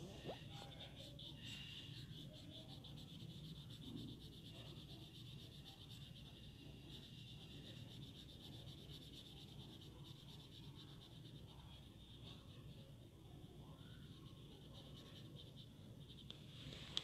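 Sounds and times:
low steady hum: 0.0s - 17.0s
pencil scratching on paper: 0.0s - 17.0s.

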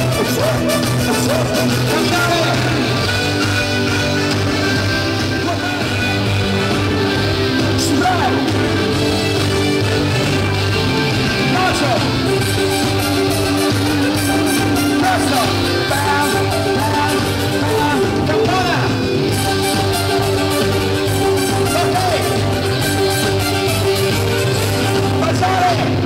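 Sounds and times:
live band music: 0.0s - 26.0s
person singing: 11.5s - 22.8s.

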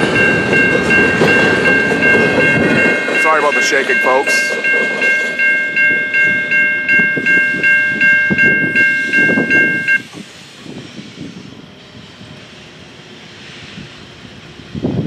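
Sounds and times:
electronic crossing bell ringing: 0.0s - 10.1s
train cars rumbling and clattering: 0.0s - 15.0s.

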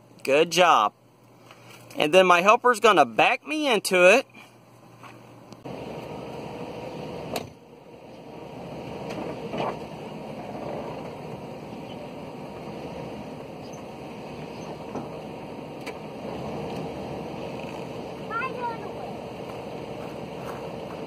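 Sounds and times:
car engine running at low revs: 5.2s - 21.0s.

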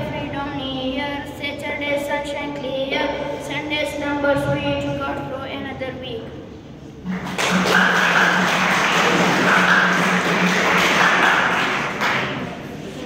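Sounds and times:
audience applauding: 7.0s - 12.6s.

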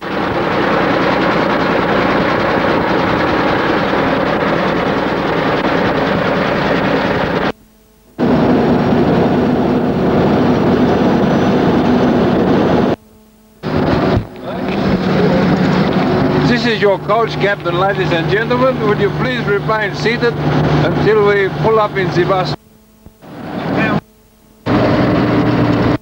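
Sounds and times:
diesel truck engine running: 0.0s - 7.5s, 8.2s - 13.0s, 13.6s - 22.6s, 23.2s - 24.0s, 24.7s - 26.0s
heavy wind noise: 8.2s - 13.0s, 13.6s - 17.0s.

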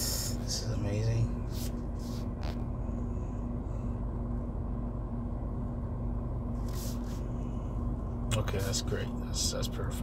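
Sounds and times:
faint steady hum: 0.0s - 10.0s
low rumble inside car: 0.0s - 10.0s.

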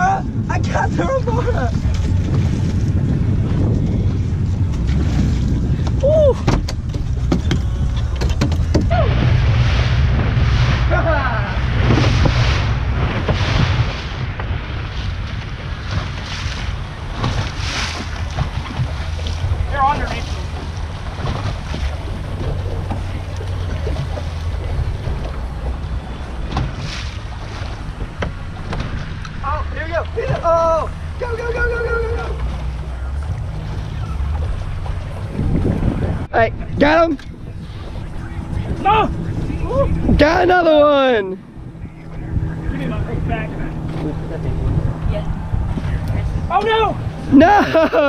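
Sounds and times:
boat engine rumble: 0.0s - 48.0s
water splashing: 0.0s - 48.0s
wind buffeting microphone: 0.0s - 48.0s.

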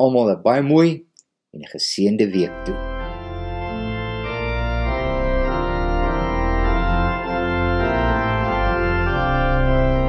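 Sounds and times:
organ music: 2.0s - 10.0s.

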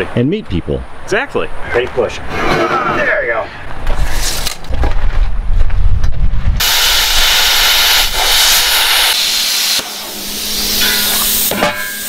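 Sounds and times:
welding arc hissing: 6.6s - 12.0s.

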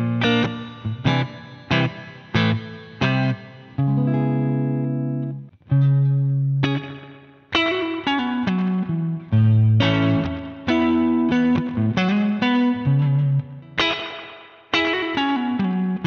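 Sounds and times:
electric guitar chords with reverb: 0.0s - 16.0s.

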